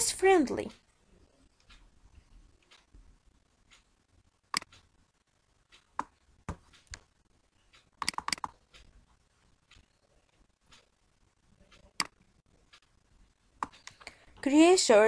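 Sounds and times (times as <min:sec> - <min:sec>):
computer mouse clicking: 0:04.5 - 0:04.9, 0:05.7 - 0:07.1, 0:07.7 - 0:09.0, 0:11.6 - 0:12.9, 0:13.6 - 0:14.2.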